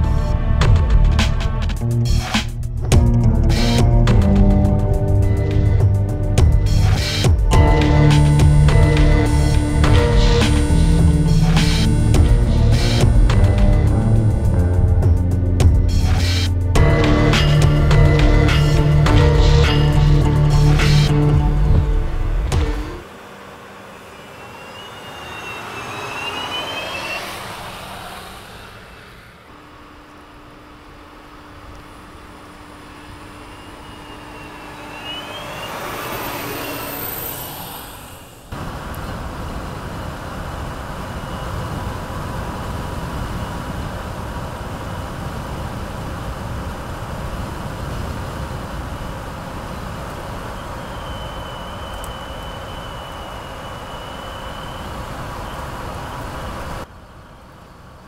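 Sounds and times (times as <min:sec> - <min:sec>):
truck tyre and road noise: 0:00.0 - 0:58.0
high electric whine: 0:02.9 - 0:45.2, 0:48.8 - 0:56.9.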